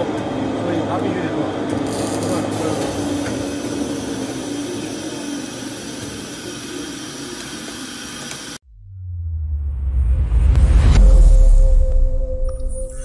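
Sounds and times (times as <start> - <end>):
paste mixer running: 1.9 - 8.6
low rumble: 8.6 - 13.0.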